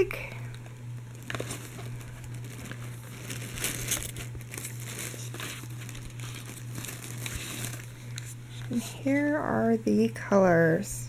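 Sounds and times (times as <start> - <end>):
steady low hum: 0.0 - 11.0
paper packaging crinkling: 0.1 - 8.9.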